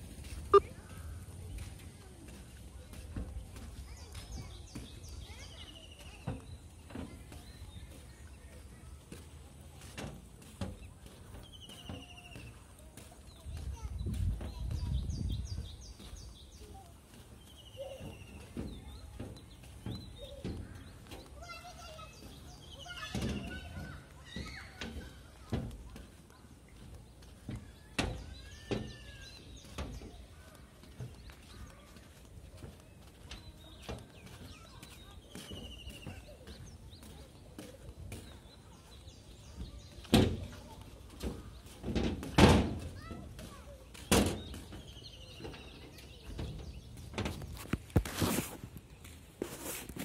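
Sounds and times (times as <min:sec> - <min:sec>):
small birds chirping: 0:00.0 - 0:50.0
dull thumps with rustle: 0:46.2 - 0:50.0.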